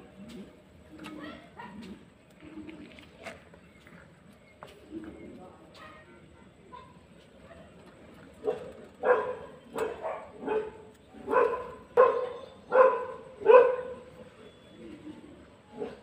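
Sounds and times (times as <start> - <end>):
dog barking: 8.4 - 14.1.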